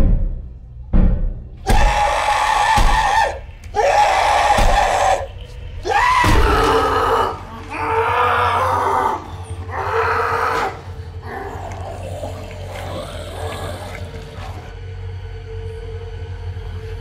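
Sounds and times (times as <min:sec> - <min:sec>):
steady low drone: 0:00.0 - 0:17.0
loud harsh cries: 0:01.6 - 0:14.4.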